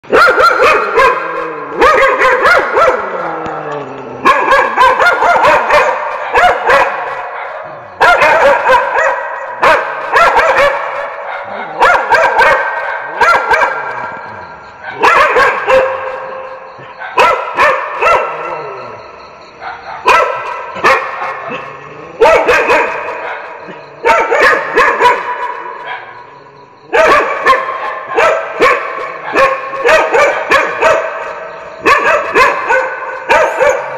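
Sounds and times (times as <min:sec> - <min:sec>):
dogs barking: 0:00.0 - 0:33.9.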